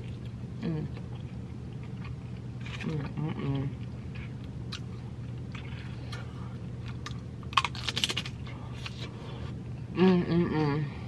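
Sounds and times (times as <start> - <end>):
tortilla chip crunching: 1.1 - 9.1.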